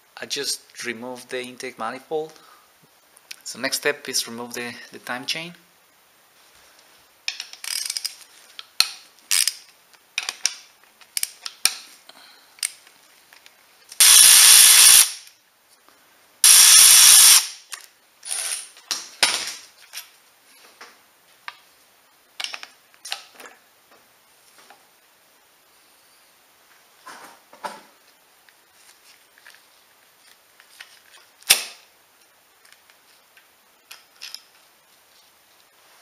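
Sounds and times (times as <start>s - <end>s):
loud bursts: 14.0s - 15.2s, 16.4s - 17.6s.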